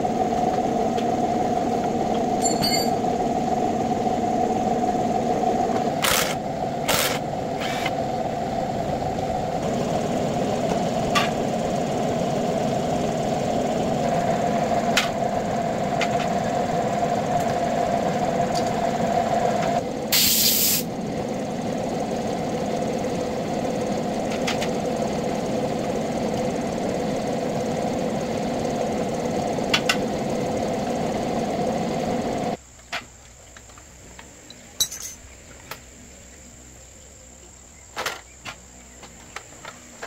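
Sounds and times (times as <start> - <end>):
machine humming: 0.0 - 32.6
short hiss: 20.1 - 20.9.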